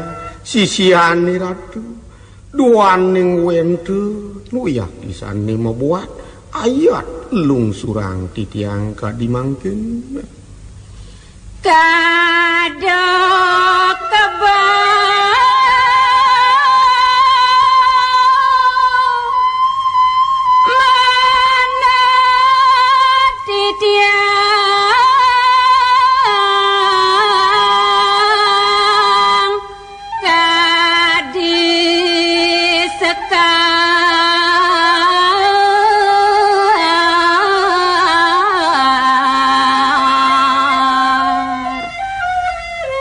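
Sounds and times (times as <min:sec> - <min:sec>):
person singing a devotional chant: 0:20.6 - 0:42.0.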